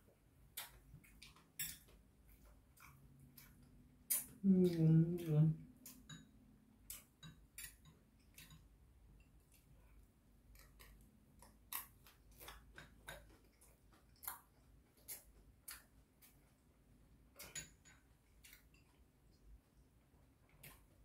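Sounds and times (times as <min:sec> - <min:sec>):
chewing mouth sounds: 0:02.3 - 0:04.8
chopsticks and spoon tapping bowl: 0:05.8 - 0:09.4.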